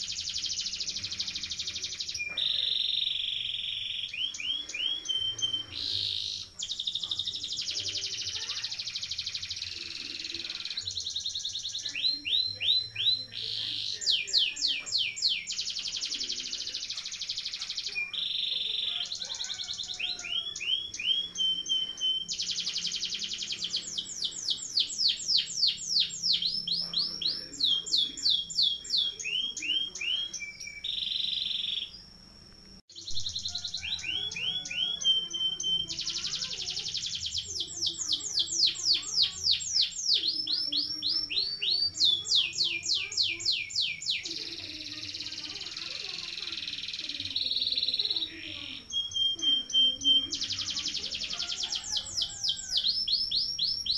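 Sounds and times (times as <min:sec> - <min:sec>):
canary singing trills: 0:00.0 - 0:53.9.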